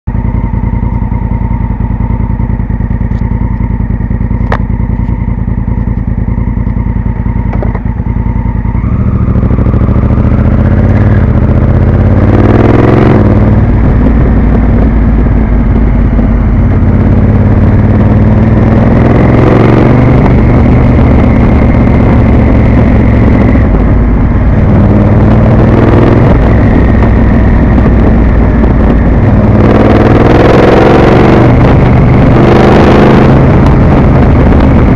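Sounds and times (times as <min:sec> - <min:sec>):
motorcycle engine revving: 0:00.1 - 0:34.9.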